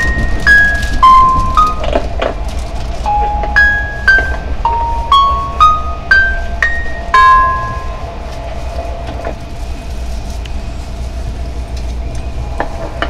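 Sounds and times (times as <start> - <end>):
train running rumble: 0.0 - 13.0.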